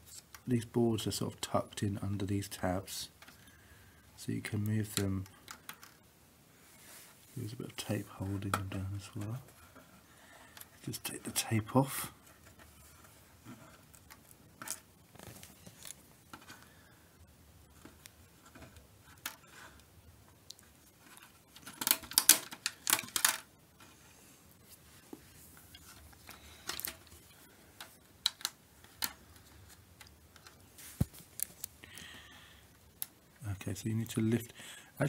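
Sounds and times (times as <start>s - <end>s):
small clicks and taps: 27.8s - 32.1s.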